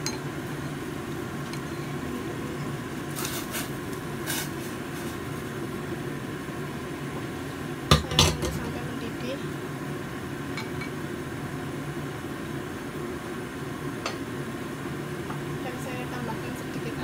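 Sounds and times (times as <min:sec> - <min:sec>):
gas burner rushing: 0:00.0 - 0:17.0
chopsticks scraping: 0:03.1 - 0:05.2.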